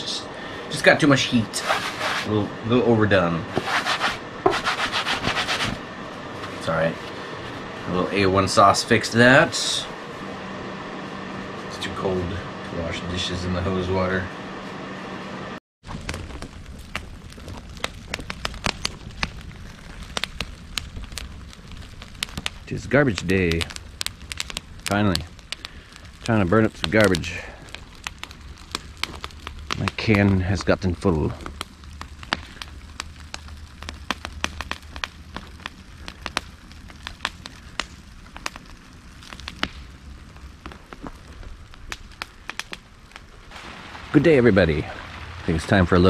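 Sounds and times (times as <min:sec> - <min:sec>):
fire crackling and popping: 0:00.0 - 0:14.3, 0:15.8 - 0:46.0
low steady rumble: 0:00.0 - 0:46.0.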